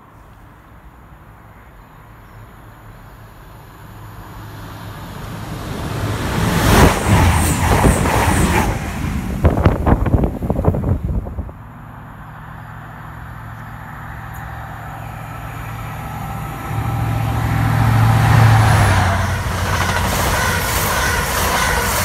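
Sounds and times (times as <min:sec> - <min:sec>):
train passing at speed: 0:00.0 - 0:22.0
wind buffeting microphone: 0:05.9 - 0:11.8.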